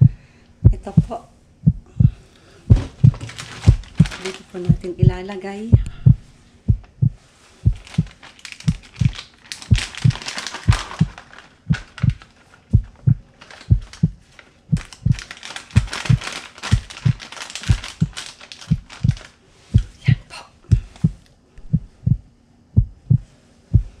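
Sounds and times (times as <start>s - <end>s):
heartbeat thumps: 0.0s - 24.0s
foil packet crinkling: 2.9s - 4.7s, 7.7s - 19.5s.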